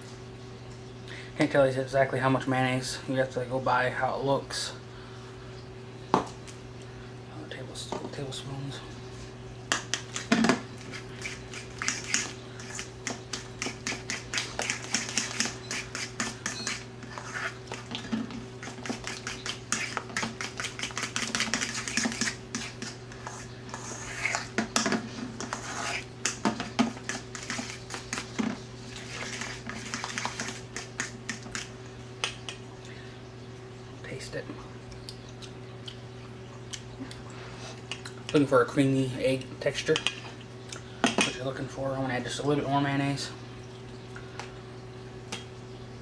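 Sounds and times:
fork scraping metal bowl: 10.0 - 18.0, 18.6 - 24.6, 25.2 - 31.7.

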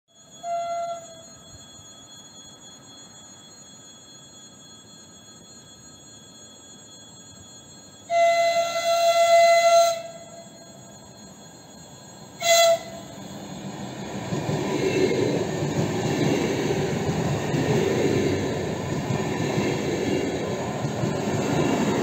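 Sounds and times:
train horn: 0.3 - 1.3, 8.1 - 10.4, 12.4 - 13.1.

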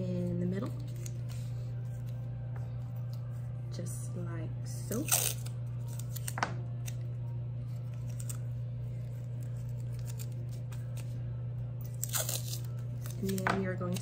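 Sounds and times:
steady low hum: 0.0 - 14.0
tape ripping: 4.9 - 7.0, 7.9 - 8.5, 9.4 - 11.1, 11.8 - 14.0
tape crinkling: 4.9 - 11.2, 11.8 - 14.0.

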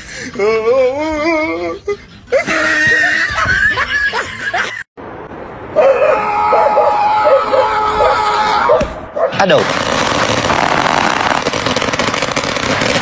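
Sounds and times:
wavering laugh-like voice: 0.4 - 4.9.

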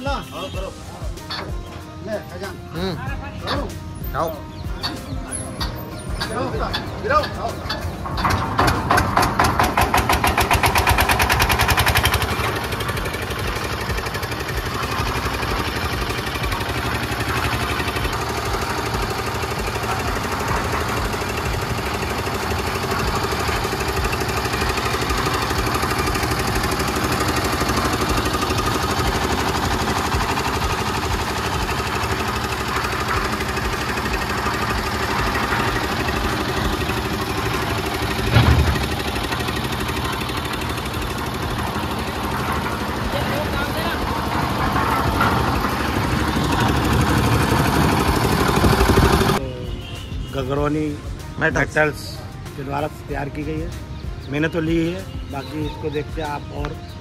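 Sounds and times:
diesel engine chugging: 0.0 - 57.0
loud thump: 38.3 - 38.9.

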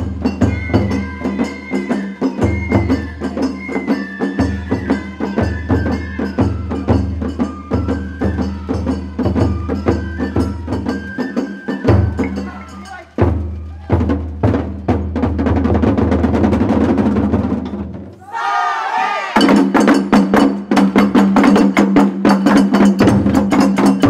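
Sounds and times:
bamboo flute melody: 0.0 - 14.7
sharp percussion strikes: 0.0 - 15.4, 19.3 - 24.0.

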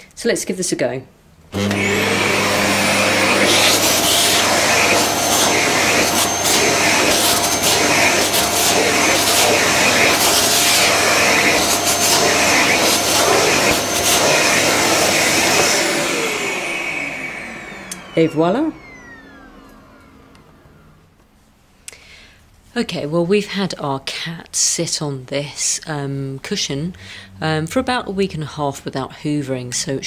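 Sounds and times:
vacuum cleaner motor whine: 1.5 - 21.4
vacuum tool swishing over fabric: 1.6 - 20.9.

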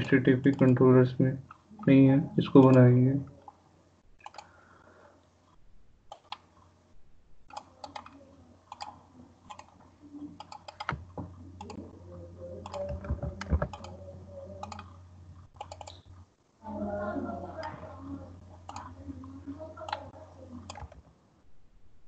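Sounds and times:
keyboard typing: 0.0 - 0.8, 4.2 - 4.6, 6.1 - 6.5, 7.4 - 11.8, 12.6 - 16.2, 18.6 - 19.0, 19.6 - 21.1.

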